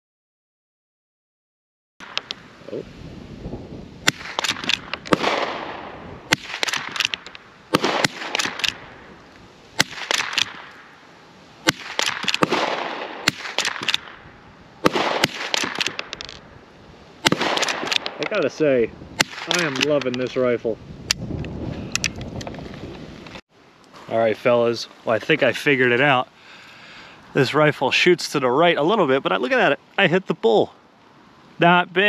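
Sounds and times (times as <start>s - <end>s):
rifle shots with echo: 4.0s - 8.9s, 9.8s - 11.0s, 11.6s - 14.2s, 14.8s - 16.2s, 17.2s - 18.4s, 19.2s - 20.1s.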